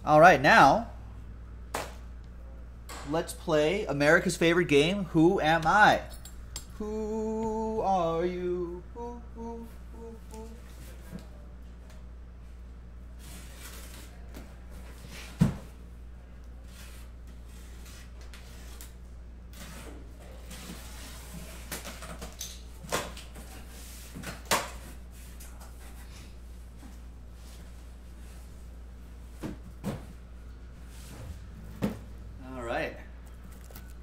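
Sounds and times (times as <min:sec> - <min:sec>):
steady low hum: 0:00.0 - 0:22.0, 0:22.6 - 0:34.0.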